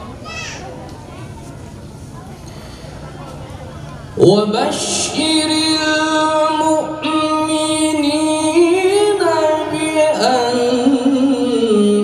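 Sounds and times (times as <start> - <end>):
man chanting into a microphone: 4.2 - 12.0.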